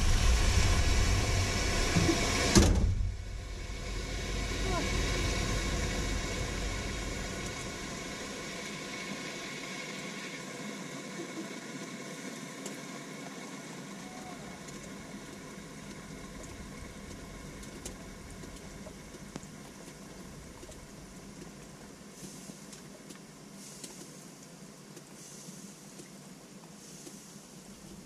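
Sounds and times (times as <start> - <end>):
steam hissing from radiator: 0.0 - 13.0, 22.1 - 22.8, 23.5 - 24.2, 25.1 - 25.9, 26.8 - 27.7
faint ticks: 14.6 - 28.0.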